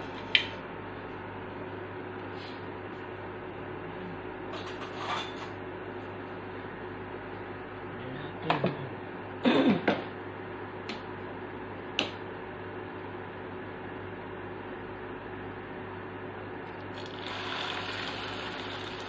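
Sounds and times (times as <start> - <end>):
cooktop fan humming: 0.0 - 19.0.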